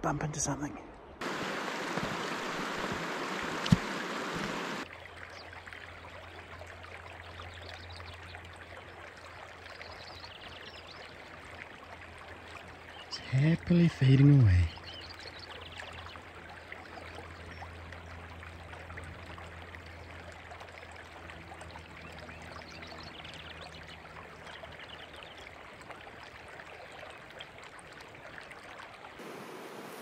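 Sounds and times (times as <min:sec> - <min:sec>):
river rushing: 0:01.2 - 0:04.8, 0:29.2 - 0:30.0.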